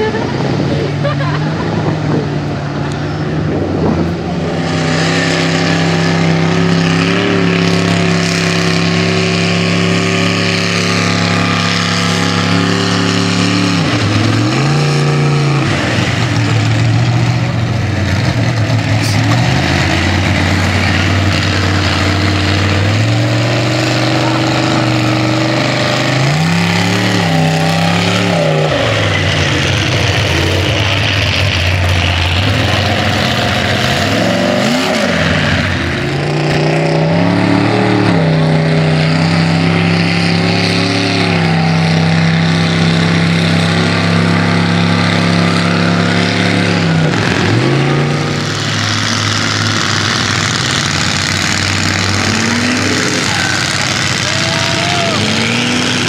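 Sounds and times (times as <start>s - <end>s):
truck engines revving: 0.0s - 56.0s
mud and water churning: 18.0s - 56.0s.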